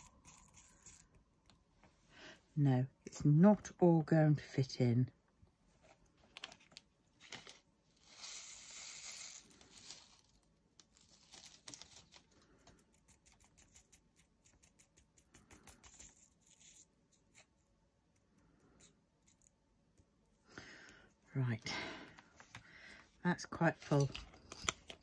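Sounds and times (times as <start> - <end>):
small beads pattering into plastic pot: 6.3 - 12.8.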